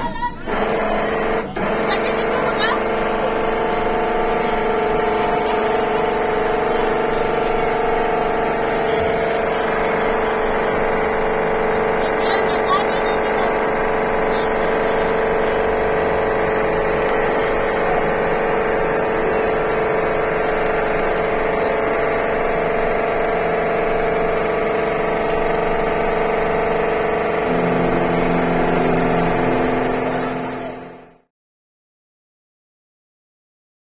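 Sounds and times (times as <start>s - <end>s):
boat engine droning: 0.0s - 31.3s.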